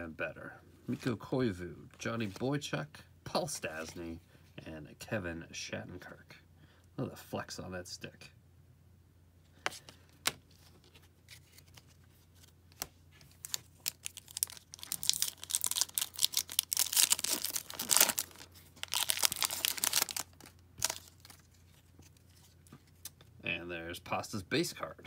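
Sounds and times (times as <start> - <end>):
card pack wrapper crinkling: 10.2 - 23.1.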